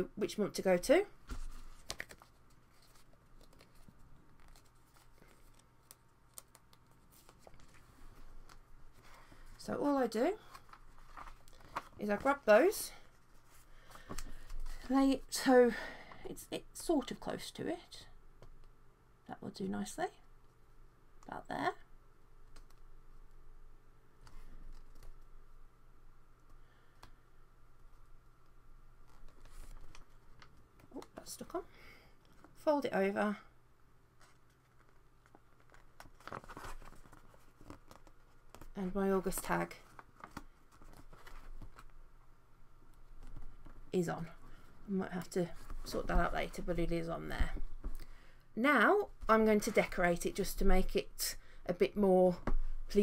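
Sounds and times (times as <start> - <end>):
paper handling: 1.3 - 9.6, 10.4 - 12.4, 34.2 - 42.0.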